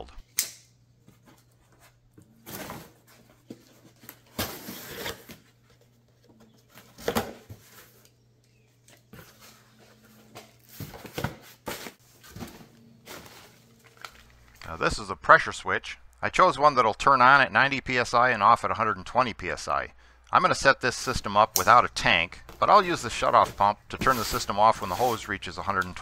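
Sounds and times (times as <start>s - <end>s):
cardboard box rustling: 9.1s - 14.0s.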